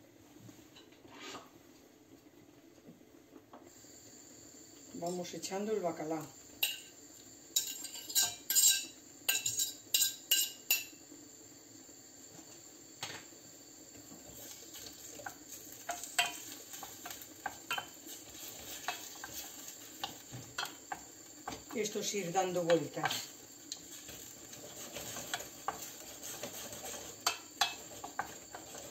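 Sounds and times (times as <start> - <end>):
wooden spoon scraping a pan: 14.1 - 28.9.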